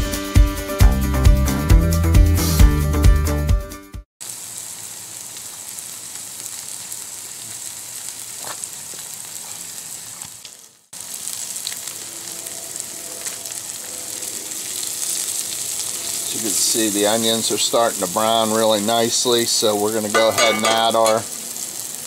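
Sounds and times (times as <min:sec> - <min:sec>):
vegetables sizzling in oil: 0:04.2 - 0:22.0.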